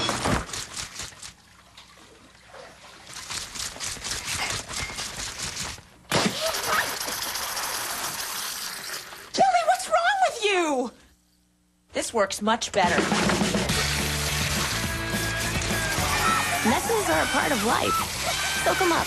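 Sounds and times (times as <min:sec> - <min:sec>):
plastic bottle being shaken: 0:00.0 - 0:01.4, 0:03.1 - 0:06.0
liquid spraying: 0:00.1 - 0:01.5, 0:03.0 - 0:09.3
person crying out: 0:16.0 - 0:19.0.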